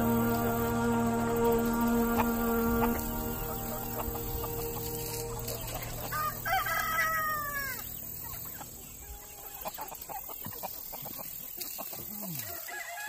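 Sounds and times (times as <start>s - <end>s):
rooster crowing: 0.0s - 7.9s, 12.5s - 13.0s.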